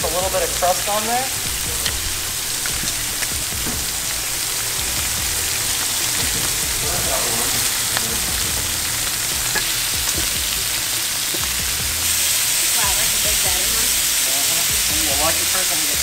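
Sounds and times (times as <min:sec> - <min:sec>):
meat sizzling in oil: 0:00.0 - 0:16.0
metal tongs clicking: 0:07.6 - 0:11.8.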